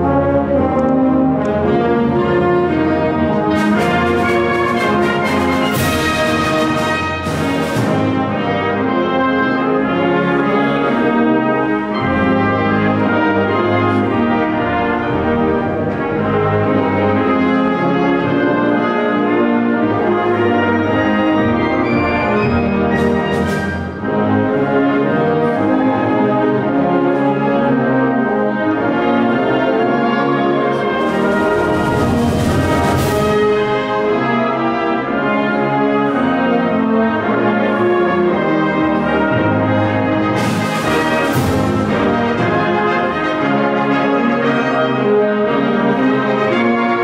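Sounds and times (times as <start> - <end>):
wind orchestra playing an anthem: 0.0 - 47.0.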